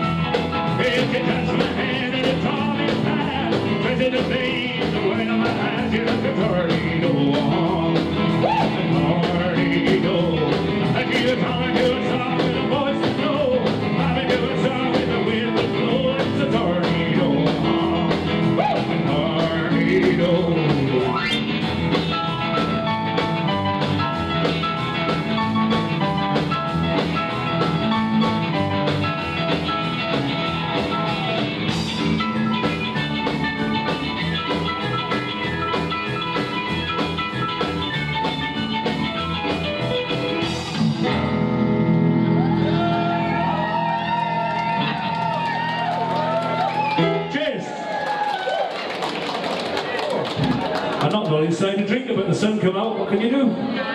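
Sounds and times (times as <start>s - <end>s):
rockabilly band playing: 0.0s - 53.8s
man singing: 0.6s - 21.4s.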